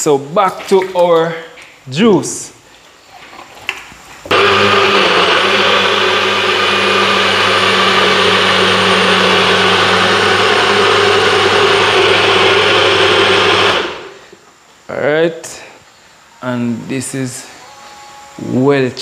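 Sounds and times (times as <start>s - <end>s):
blender running: 4.3s - 14.3s.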